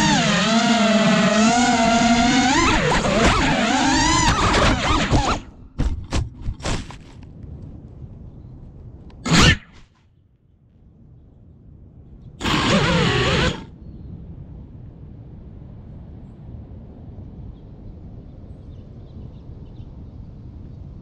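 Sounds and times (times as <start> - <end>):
drone motors whining: 0.0 - 5.6, 9.2 - 9.7, 12.4 - 13.7
outdoor background noise: 0.0 - 21.0.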